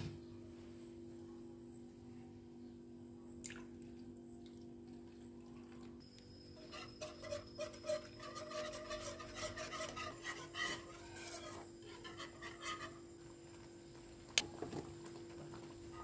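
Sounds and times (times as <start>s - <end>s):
whisk scraping a pan: 6.6s - 13.2s.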